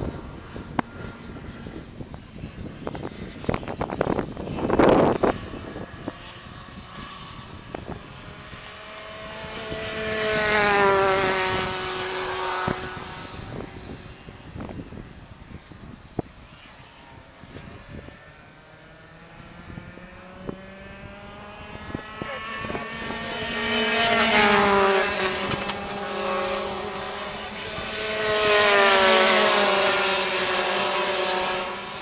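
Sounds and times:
go-kart engines at high revs: 0.0s - 32.0s.

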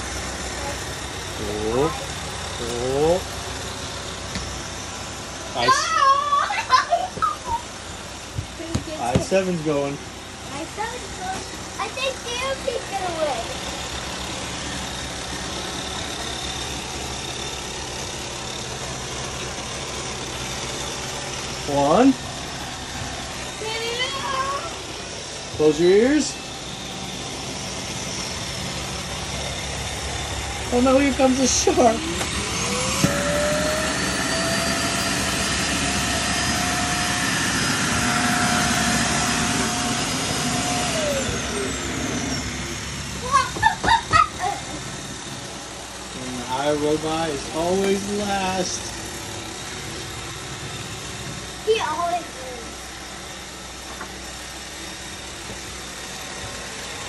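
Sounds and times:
vacuum motor whining: 21.7s - 51.4s
robot vacuum cleaner whirring: 31.7s - 42.5s.

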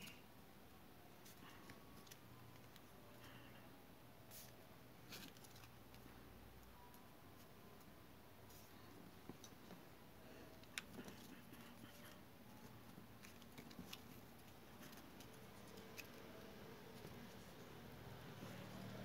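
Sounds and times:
paper strips rustling: 4.3s - 6.1s, 10.5s - 17.8s.

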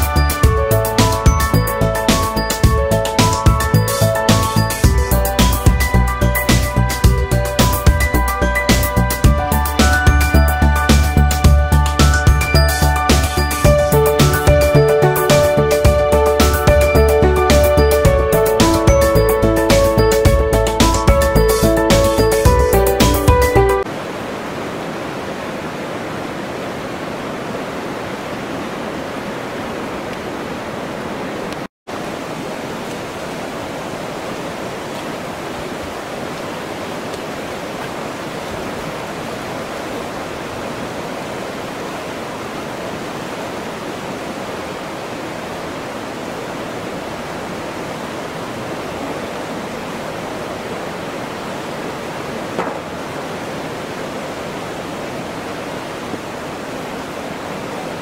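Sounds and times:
river rushing over rocks: 23.8s - 58.0s.

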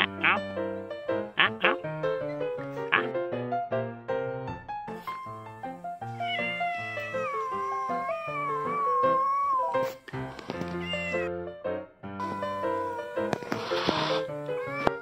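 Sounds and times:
background music: 0.0s - 15.0s
cat meowing: 6.1s - 11.3s, 12.2s - 15.0s.

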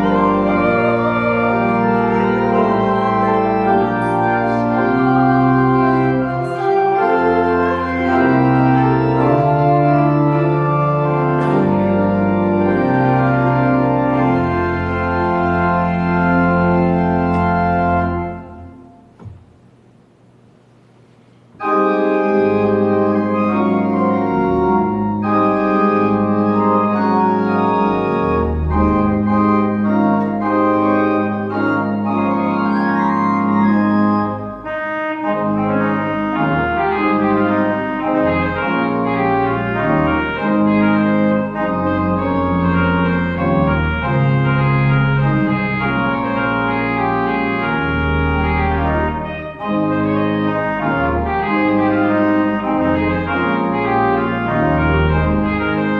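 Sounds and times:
pipe organ playing chords: 0.0s - 19.8s, 20.7s - 55.9s.

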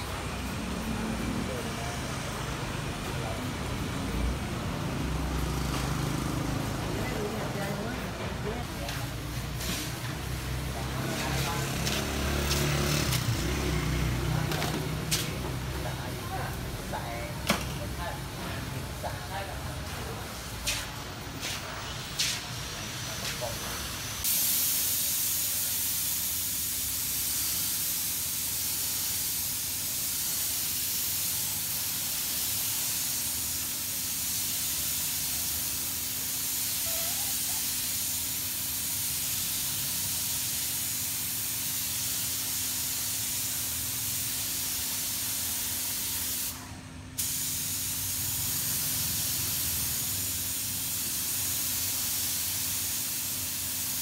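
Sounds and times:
spray gun hissing: 8.7s - 17.2s, 18.9s - 46.6s, 47.2s - 54.0s.

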